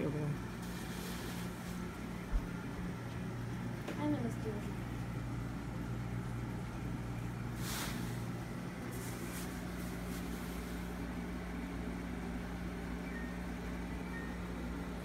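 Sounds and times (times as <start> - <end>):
low room hum: 0.0 - 15.0
short rustling hiss: 7.6 - 10.9.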